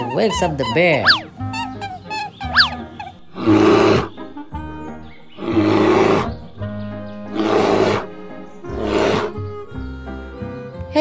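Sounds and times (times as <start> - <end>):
light background music: 0.0 - 11.0
cartoon bear roars: 2.5 - 4.2, 5.4 - 6.4, 7.3 - 9.5.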